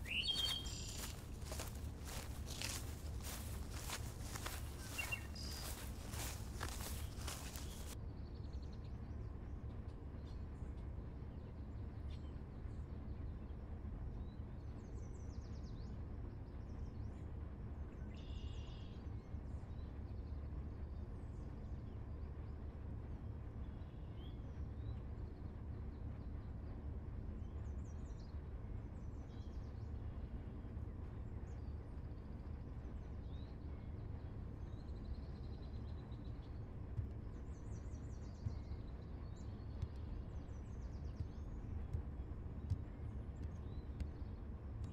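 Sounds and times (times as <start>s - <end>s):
bird chirps and calls: 0.0s - 7.9s.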